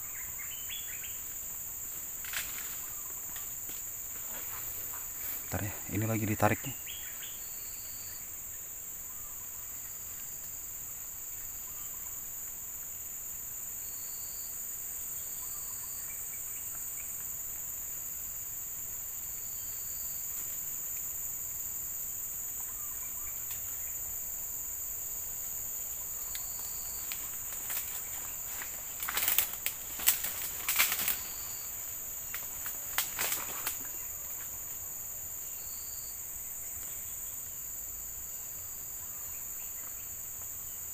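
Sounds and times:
chorus of forest insects: 0.0s - 40.9s
insect chirps: 0.0s - 40.9s
sharp rustles and knocks: 2.0s - 5.2s, 27.0s - 31.4s, 32.3s - 33.9s.

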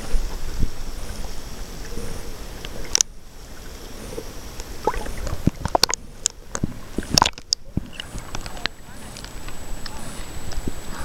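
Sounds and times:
water sloshing and gurgling: 0.0s - 11.0s
small clicks and splashes: 4.6s - 10.6s.

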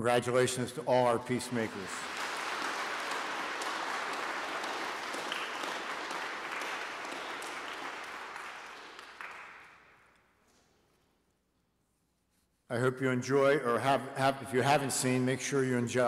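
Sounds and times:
children applauding: 1.3s - 10.0s.

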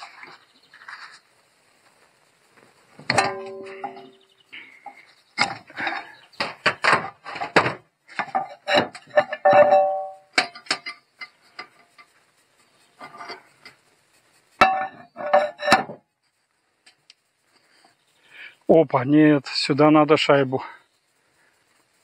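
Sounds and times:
metal knocks and clanks: 3.0s - 4.2s, 4.9s - 11.8s, 14.6s - 16.0s
short metallic ring: 3.1s - 4.2s, 9.2s - 10.6s.

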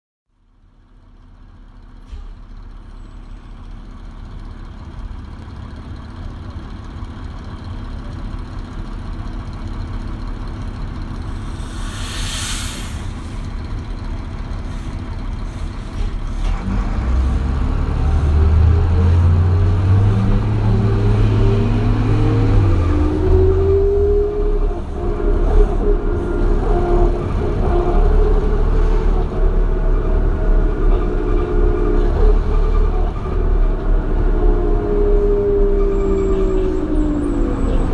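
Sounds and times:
bus engine idling: 0.3s - 37.9s
bus pulling away through gears: 0.4s - 37.9s
air brake hiss: 11.4s - 13.4s.

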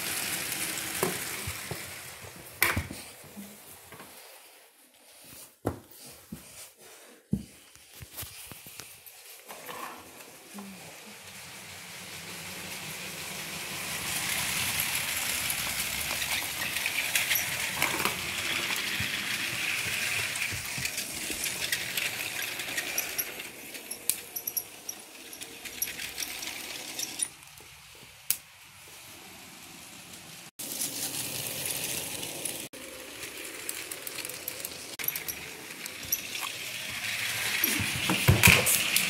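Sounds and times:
toy train motor whirring: 0.0s - 2.2s, 11.2s - 28.4s, 30.6s - 39.0s
wheels clicking over track joints: 12.0s - 27.6s, 30.8s - 39.0s.

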